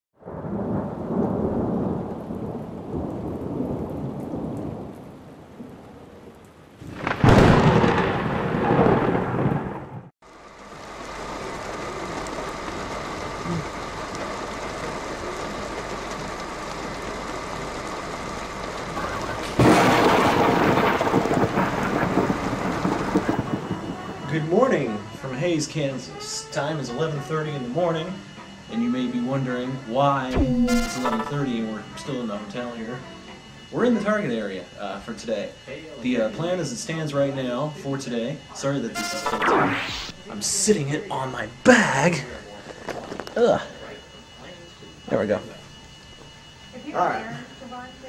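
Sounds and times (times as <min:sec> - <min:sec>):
loud thunderclap: 0:00.2 - 0:06.2, 0:06.8 - 0:10.1, 0:19.2 - 0:24.3
rolling thunder: 0:00.2 - 0:10.1, 0:18.9 - 0:25.1
rain: 0:00.2 - 0:48.0.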